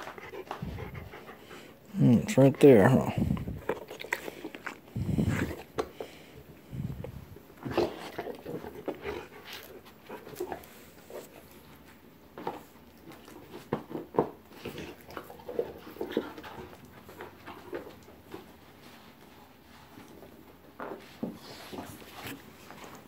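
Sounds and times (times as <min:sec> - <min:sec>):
dog panting: 0:00.0 - 0:11.9, 0:13.2 - 0:20.3
chewing and knocking on ball: 0:03.2 - 0:11.4, 0:12.3 - 0:18.6.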